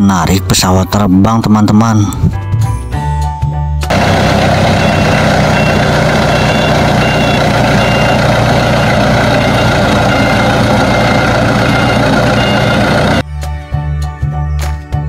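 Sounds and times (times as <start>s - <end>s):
tow tractor engine running: 3.9s - 13.2s
short high beeps: 4.8s - 13.2s.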